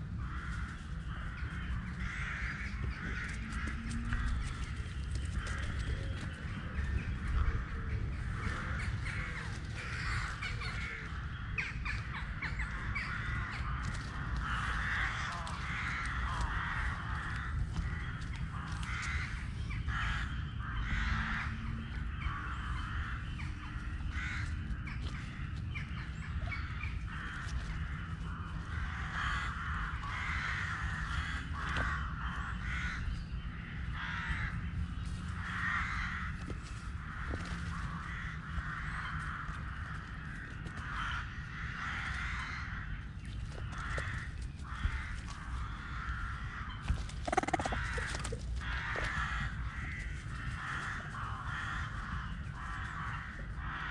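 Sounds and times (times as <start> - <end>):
harsh animal calls: 43.6 - 53.9.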